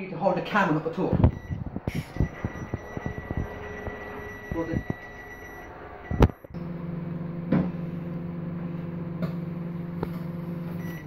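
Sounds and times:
microwave oven humming: 0.6s - 11.0s
microwave oven click: 9.1s - 11.0s.

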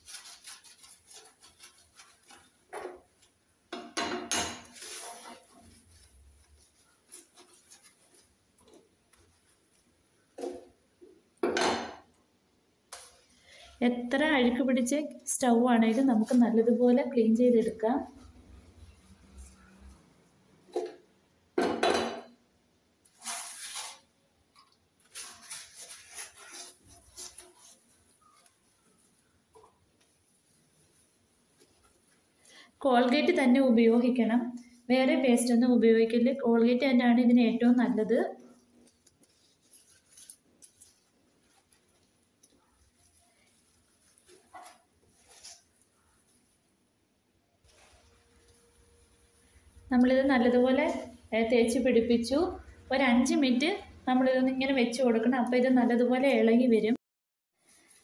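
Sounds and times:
sponge scrubbing stove top: 0.0s - 3.3s, 4.6s - 10.4s, 15.4s - 20.1s, 25.1s - 34.8s, 37.6s - 46.7s, 47.7s - 51.3s.

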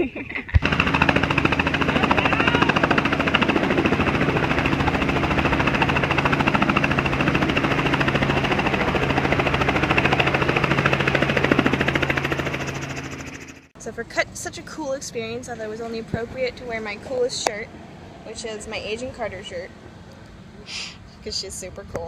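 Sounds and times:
helicopter rotor chop: 0.4s - 19.6s
helicopter engine hum: 0.5s - 13.8s.

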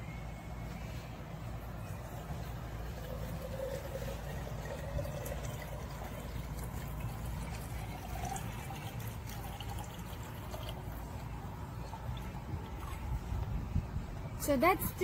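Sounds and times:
water pouring into a glass jar: 1.8s - 13.4s.

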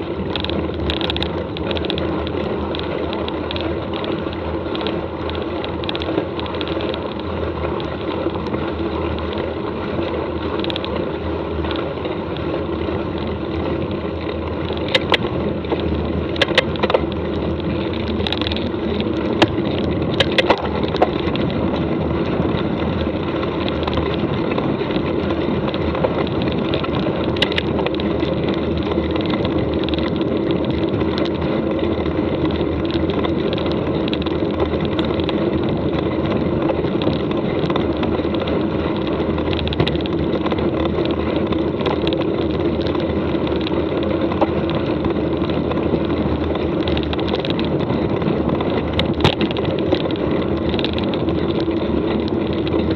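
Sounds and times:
bike tyres rolling on dirt: 0.0s - 52.9s
sharp clicks and knocks: 13.2s - 21.9s, 22.5s - 52.9s.

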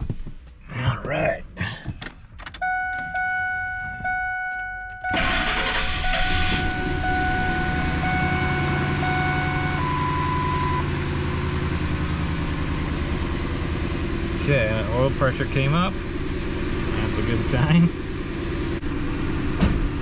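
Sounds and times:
truck engine cranking and idling: 0.0s - 20.0s
dashboard warning chime dinging: 2.5s - 11.0s.

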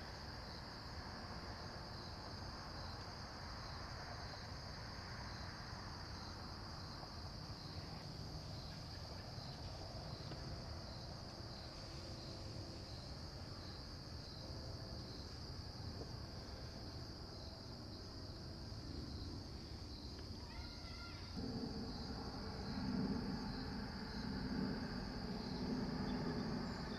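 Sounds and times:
cricket trill: 0.0s - 26.9s
low background hum: 6.0s - 26.9s.

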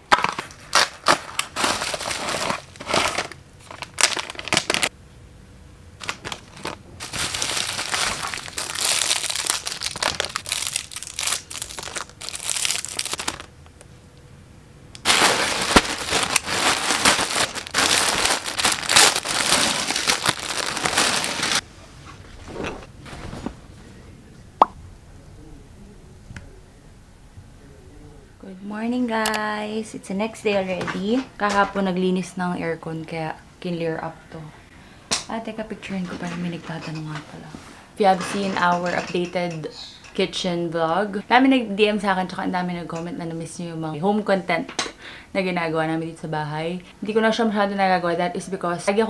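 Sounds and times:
plastic packaging crinkling and tearing: 0.1s - 4.9s, 6.0s - 13.5s, 15.0s - 21.6s.

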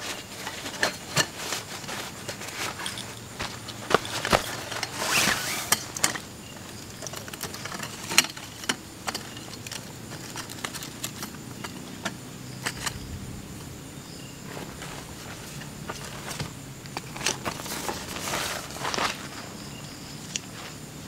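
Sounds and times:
tent poles clicking and knocking: 0.0s - 13.8s, 14.4s - 20.9s
fabric rustling swish: 3.4s - 5.7s.

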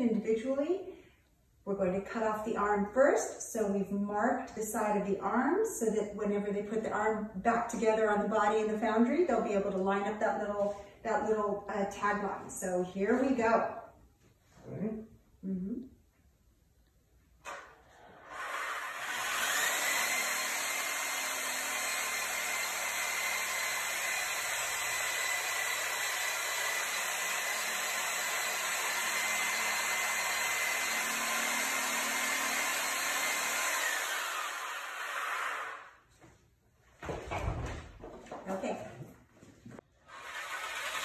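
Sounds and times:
handheld power tool whining: 17.5s - 36.0s, 39.9s - 41.0s.

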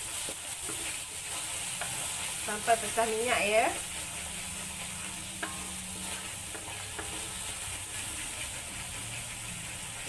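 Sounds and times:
paste sizzling in oil: 0.0s - 10.0s
wooden spatula scraping wok: 0.0s - 10.0s.

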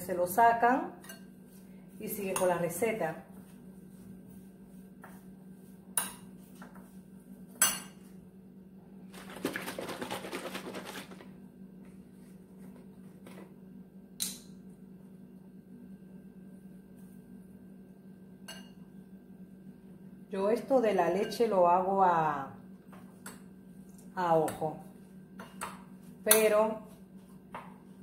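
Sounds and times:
carton shaken sloshing: 9.1s - 11.3s.

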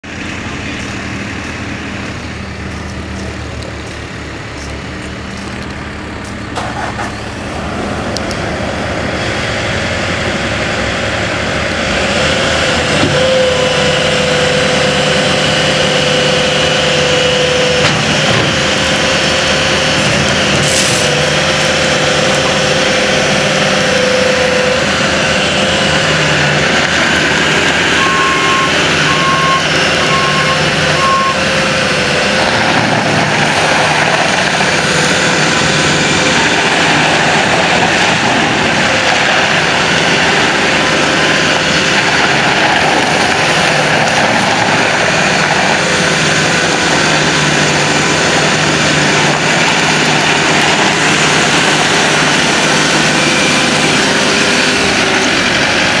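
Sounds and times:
diesel engine running: 0.0s - 56.0s
backup alarm beeping: 28.0s - 31.5s.

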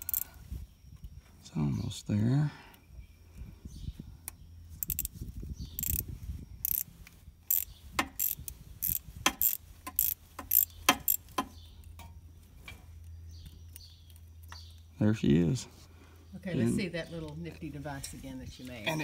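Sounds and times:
socket ratchet clicking: 0.0s - 0.3s, 4.8s - 5.1s, 5.8s - 6.9s, 7.5s - 11.4s.

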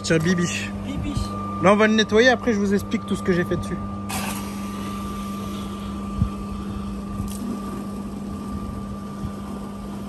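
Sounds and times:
steady mechanical hum: 0.0s - 10.0s.

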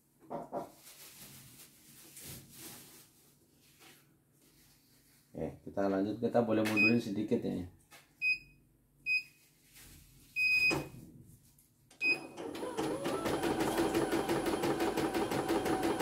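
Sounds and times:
embroidery machine stitching: 12.2s - 16.0s.

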